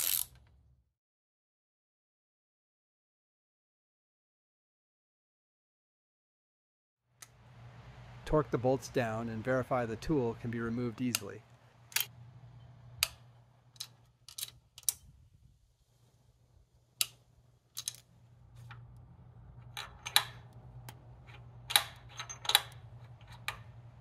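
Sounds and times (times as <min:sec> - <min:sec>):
faint low hum: 0:07.2 - 0:24.0
hand tools clicking on metal: 0:19.6 - 0:23.8.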